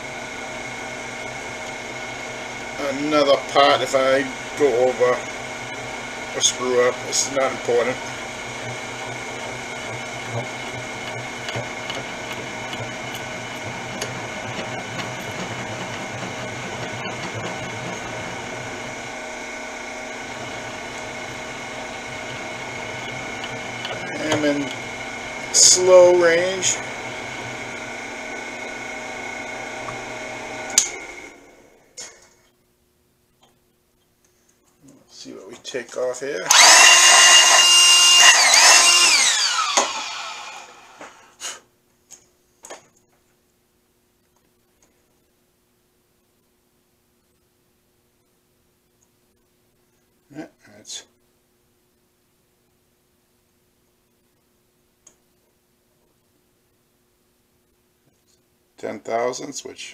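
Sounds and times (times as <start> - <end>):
milling spindle motor hum: 0.0 - 31.8, 36.5 - 41.1
gear whine: 6.4 - 19.2, 36.5 - 40.9.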